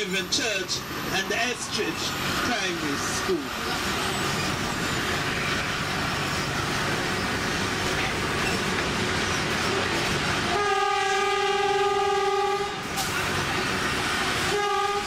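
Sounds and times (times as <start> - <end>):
train rumbling on track: 0.0 - 15.0
train horn blast: 10.4 - 13.0, 14.4 - 15.0.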